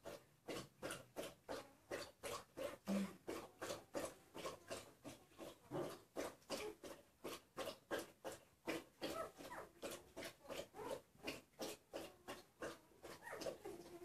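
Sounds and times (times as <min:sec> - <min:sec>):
puppy squealing and whimpering: 0:09.1 - 0:09.7, 0:13.1 - 0:14.0.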